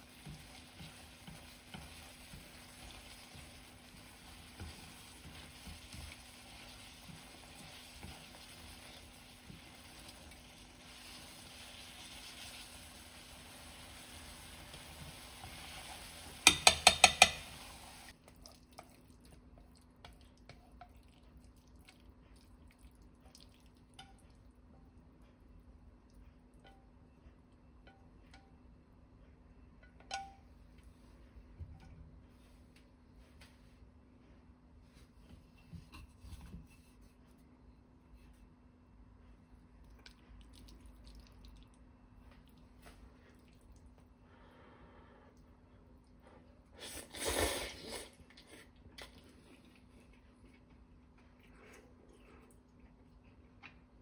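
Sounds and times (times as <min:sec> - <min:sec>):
noodles sizzling in a frying pan: 0:00.0 - 0:18.2
chopsticks clinking on pot and plate: 0:16.5 - 0:17.5.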